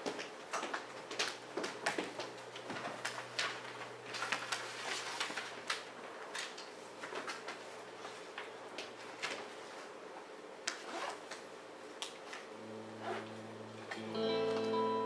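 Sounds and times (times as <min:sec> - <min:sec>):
faint low hum: 0:00.2 - 0:15.0.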